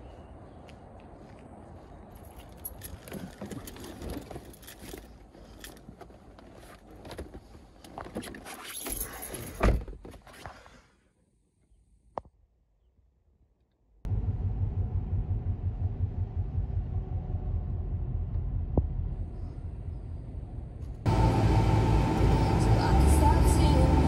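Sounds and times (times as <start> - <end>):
keys jangling: 2.2 - 5.9, 8.7 - 9.6
street noise: 18.5 - 24.0.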